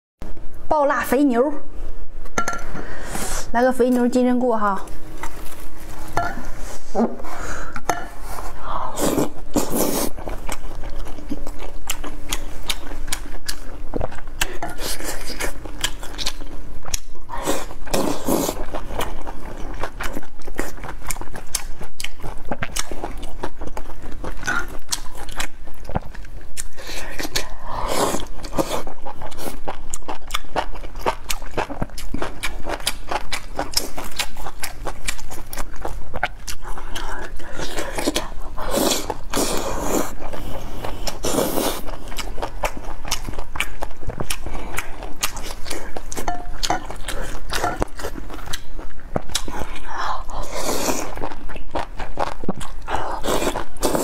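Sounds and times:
slurping noodles: 6.5 - 10.2, 37.6 - 41.9
wet chewing and mouth clicks: 9.0 - 54.0.

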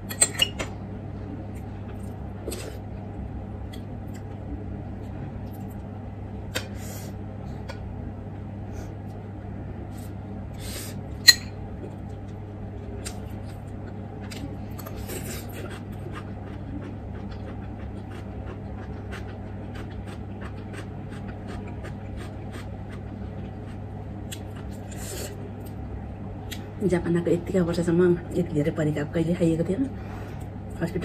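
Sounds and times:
steady low hum: 0.0 - 31.0
chewing and mouth clicks: 12.2 - 24.8.

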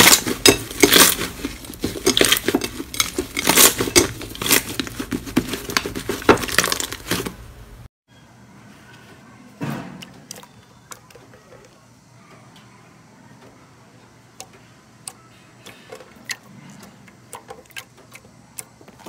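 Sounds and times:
jelly slime squishing: 0.0 - 7.4.

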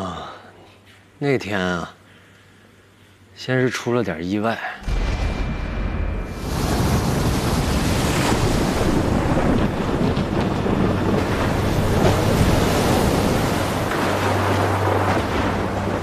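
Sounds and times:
strong wind: 4.8 - 16.0
waves crashing against hull: 4.8 - 16.0.

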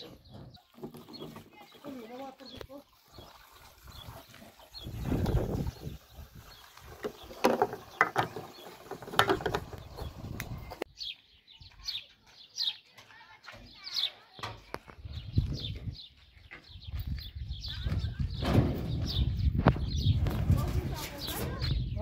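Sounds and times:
small birds chirping: 0.0 - 22.0
plastic jerrycans knocking: 6.9 - 10.6.

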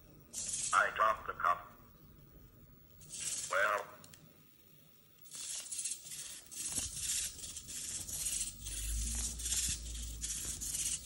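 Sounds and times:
servos buzzing: 5.2 - 11.0.

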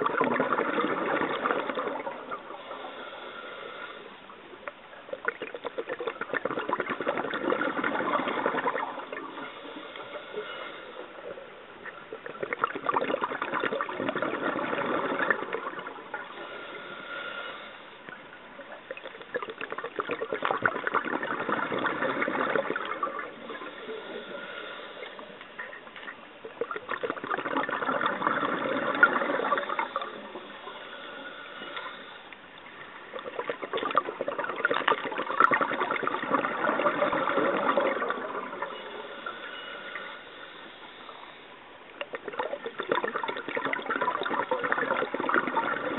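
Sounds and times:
diver exhaling bubbles underwater: 0.0 - 3.0, 5.1 - 17.2, 18.8 - 30.8, 33.1 - 40.2, 42.0 - 45.9
diver inhaling through regulator: 0.7 - 4.3, 7.0 - 11.5, 14.2 - 18.1, 21.4 - 25.5, 27.9 - 32.4, 35.0 - 41.6.

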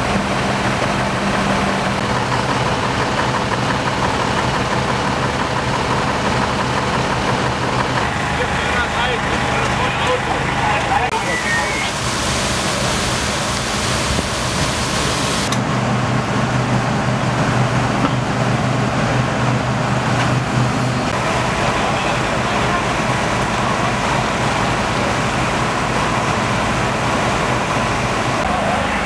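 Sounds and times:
fire engines humming: 0.0 - 29.0
loud hiss: 11.1 - 15.5.

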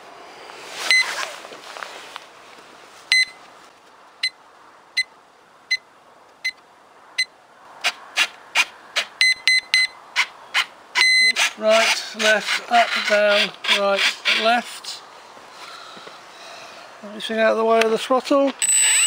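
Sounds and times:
short electronic beeps: 0.9 - 1.1, 3.1 - 3.4, 9.2 - 10.0, 11.0 - 11.4, 18.6 - 19.0
servo whirring: 18.6 - 19.0.

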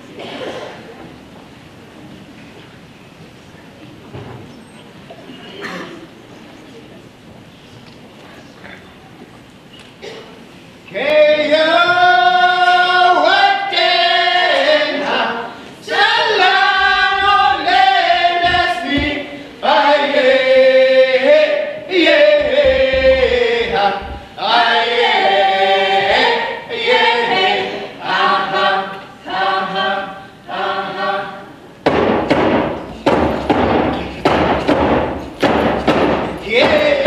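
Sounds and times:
group singing together: 10.9 - 37.0
hand drums beating: 22.4 - 24.4, 31.9 - 37.0.

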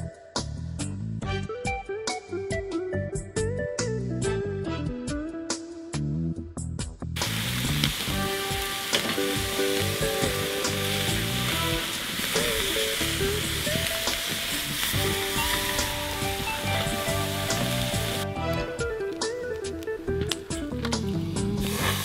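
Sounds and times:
background music: 0.0 - 22.0
meat sizzling on a grill: 7.2 - 18.5, 20.5 - 22.0.

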